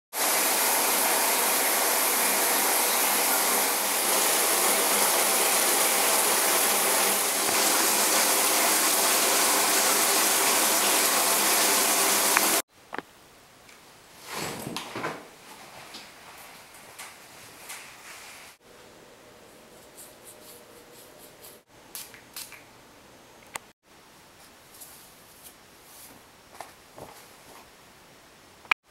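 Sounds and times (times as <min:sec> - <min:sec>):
shower water spraying: 0:00.2 - 0:12.6.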